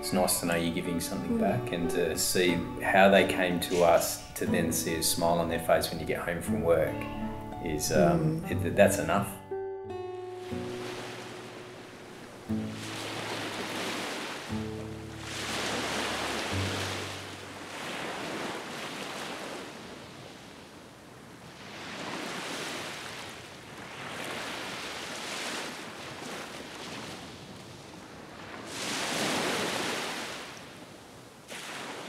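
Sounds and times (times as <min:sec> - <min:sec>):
ocean surf breaking: 0:00.0 - 0:06.3, 0:10.4 - 0:32.0.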